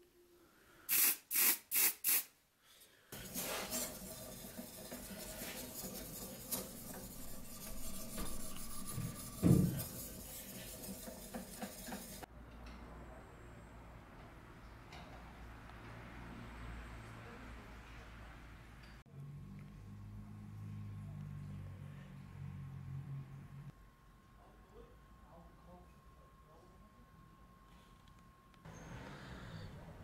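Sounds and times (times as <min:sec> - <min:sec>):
aerosol spray can hissing: 0:00.9 - 0:02.3
rubbing on a surface: 0:03.2 - 0:12.3
dull knock: 0:09.0 - 0:09.8.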